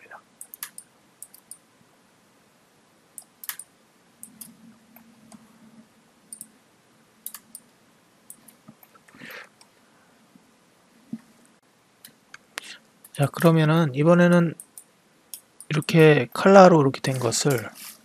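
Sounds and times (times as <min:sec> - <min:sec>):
computer mouse clicking: 0:00.4 - 0:01.6, 0:03.2 - 0:05.5, 0:06.3 - 0:06.5, 0:07.2 - 0:07.7, 0:08.3 - 0:09.0, 0:14.3 - 0:16.0.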